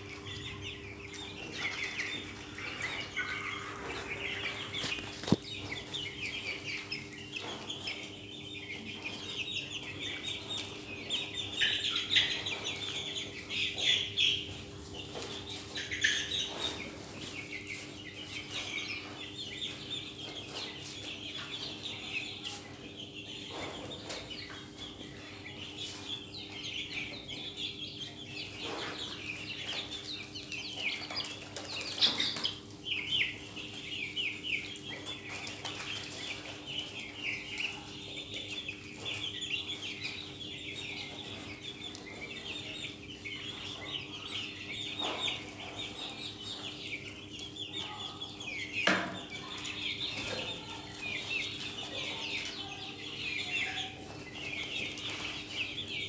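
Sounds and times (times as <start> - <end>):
chicks peeping and chirping: 0.0 - 56.0.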